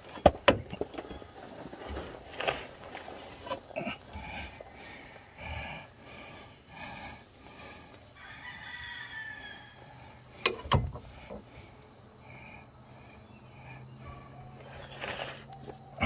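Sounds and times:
rooster crowing: 0:08.1 - 0:10.2.

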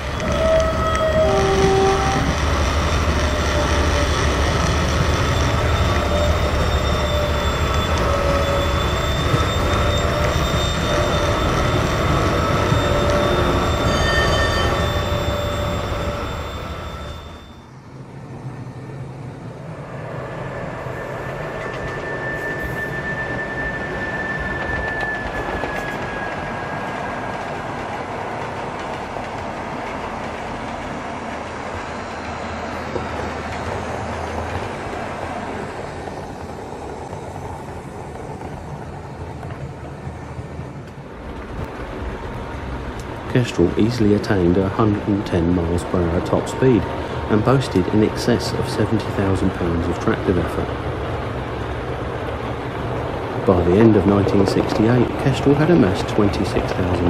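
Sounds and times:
high whines: 0:00.0 - 0:29.0
diesel locomotive engine drone: 0:00.0 - 0:57.0
thin steady whistle: 0:05.0 - 0:17.8, 0:20.4 - 0:27.6.

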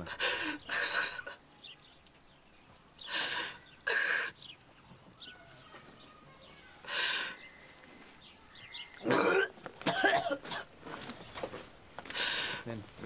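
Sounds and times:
boy sobbing with breathy gasps: 0:00.0 - 0:01.5, 0:06.8 - 0:07.5.

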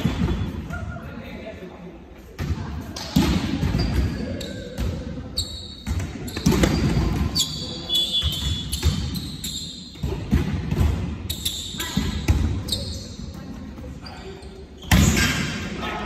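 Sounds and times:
shoes squeaking on floor: 0:03.7 - 0:10.0, 0:11.2 - 0:15.2.

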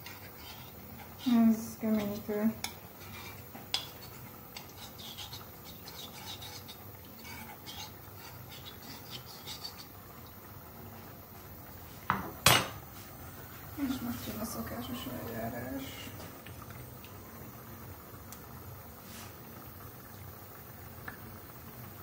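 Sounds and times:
utensil scraping ceramic bowl: 0:00.0 - 0:10.0.

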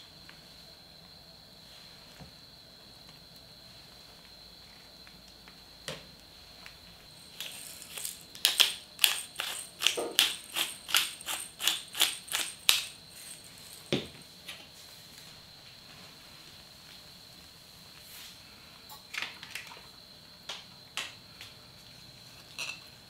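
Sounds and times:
pepper grinder grinding: 0:07.2 - 0:13.8.

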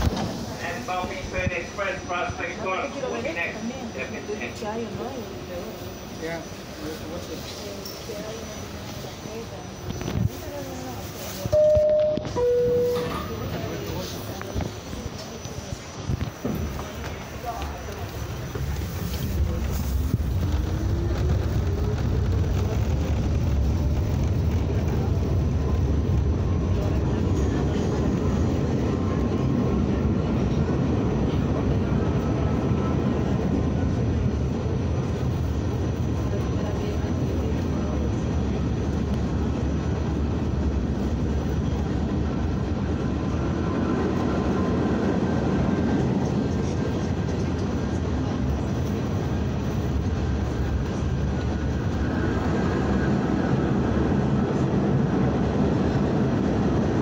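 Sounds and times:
subway car rumble and rattle: 0:00.0 - 0:57.0
train rising whine: 0:11.4 - 0:27.8.

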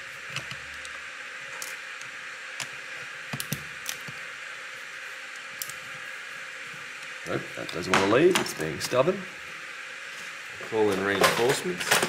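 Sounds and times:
steady hiss: 0:00.0 - 0:12.0
screwdriver clicking and tapping: 0:03.3 - 0:04.2.

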